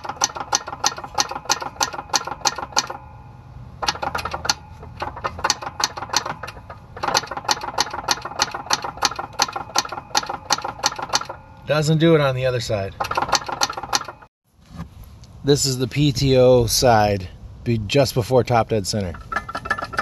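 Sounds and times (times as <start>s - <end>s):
rapid metallic tinking from engine: 0.0s - 14.3s, 19.1s - 20.0s.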